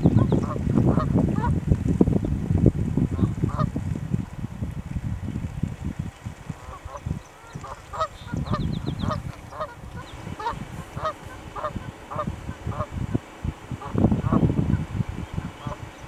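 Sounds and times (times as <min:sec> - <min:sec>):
low rumbling noise: 0:00.0 - 0:16.0
geese honking: 0:06.6 - 0:16.0.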